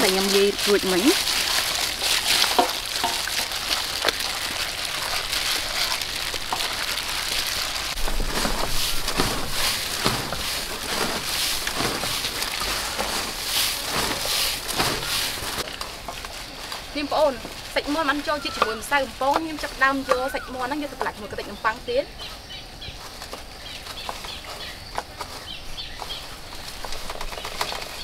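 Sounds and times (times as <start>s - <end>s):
breadcrumbs rustling on metal tray: 0.0s - 20.0s.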